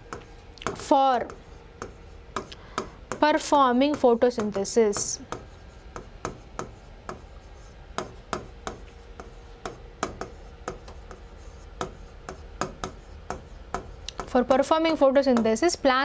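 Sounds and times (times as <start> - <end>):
pen tapping and scraping on glass: 8.0 - 14.5.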